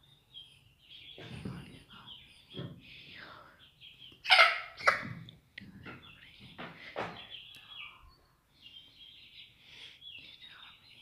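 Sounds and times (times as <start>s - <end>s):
young chickens calling: 0.0s - 11.0s
chick squawks: 4.2s - 5.1s.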